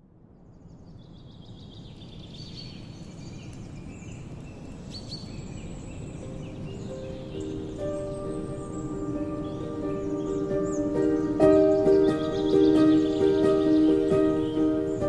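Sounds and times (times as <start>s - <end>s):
birds chirping and whistling: 1.7s - 15.0s
soft sustained music notes: 5.4s - 15.0s.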